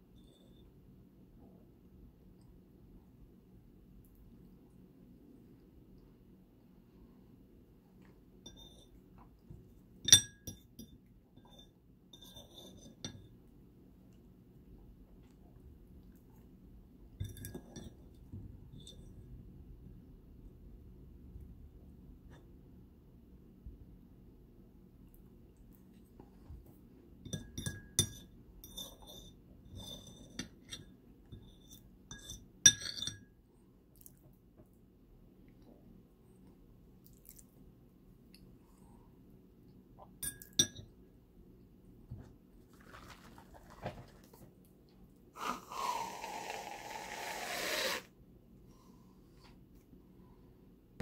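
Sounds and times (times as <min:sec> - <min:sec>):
fork clinking on ceramic plate: 0:10.0 - 0:13.3, 0:27.3 - 0:30.8, 0:31.4 - 0:33.2, 0:40.2 - 0:40.9
fork tapping and scraping: 0:10.0 - 0:13.3, 0:17.2 - 0:18.1, 0:27.2 - 0:33.2.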